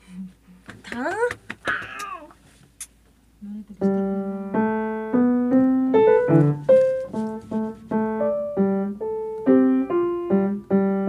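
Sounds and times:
piano melody: 0:03.8 - 0:11.0.

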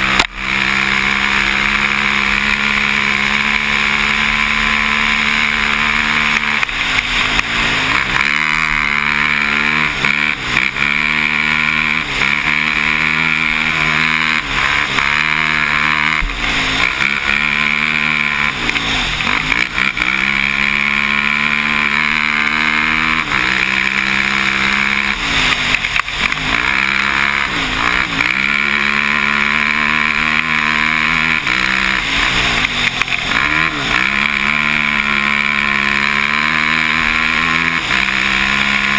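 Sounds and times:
atv engine running hard: 0:00.0 - 0:38.9
steady rushing noise: 0:00.0 - 0:38.9.

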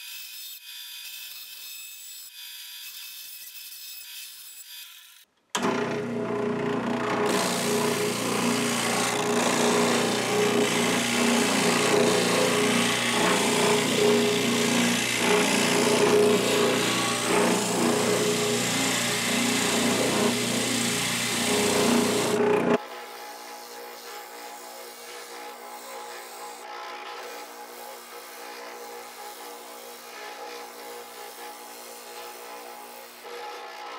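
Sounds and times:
spindle sander motor humming: 0:05.6 - 0:33.9
wood rasping against sanding drum: 0:07.2 - 0:33.9.

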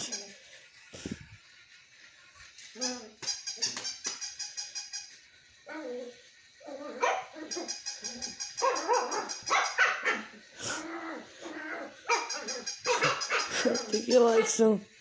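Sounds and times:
puppy barking and yipping: 0:02.8 - 0:04.9, 0:06.8 - 0:10.4, 0:11.5 - 0:14.6.

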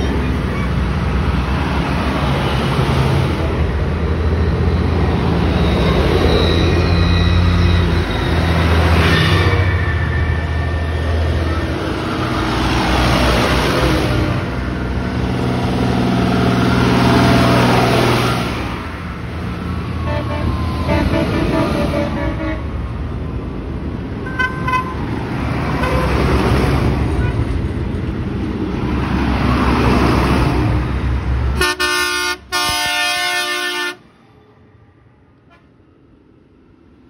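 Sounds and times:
tractor diesel engines passing: 0:00.0 - 0:37.0.

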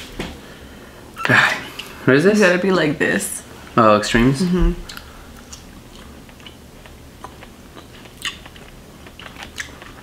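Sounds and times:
people chewing candy: 0:04.8 - 0:10.0.

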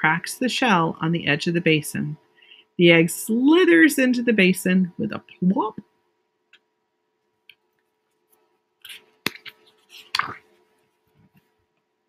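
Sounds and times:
book pages turning: 0:07.7 - 0:11.6.

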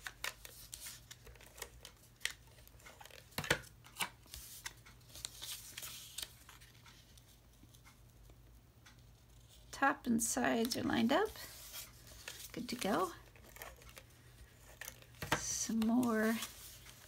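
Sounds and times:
paper rustling and rubbing: 0:11.2 - 0:17.0.

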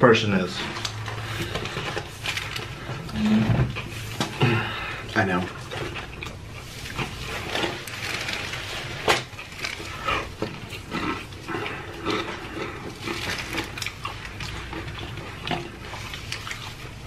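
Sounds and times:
close-up chewing and lip-smacking: 0:05.0 - 0:08.0, 0:09.2 - 0:17.0.

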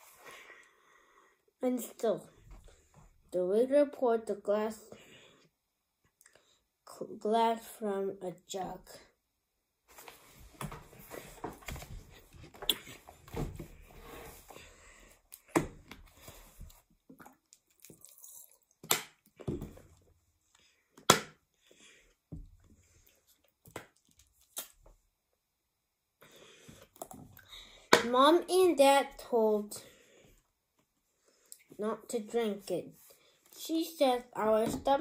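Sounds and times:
sips of water: 0:17.1 - 0:18.8.

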